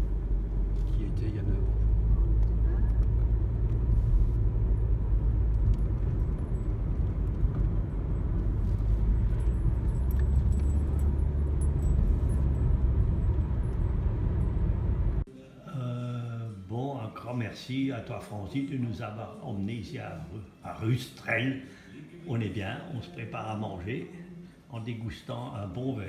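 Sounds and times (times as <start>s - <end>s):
engine and tyre rumble: 0.0s - 15.3s.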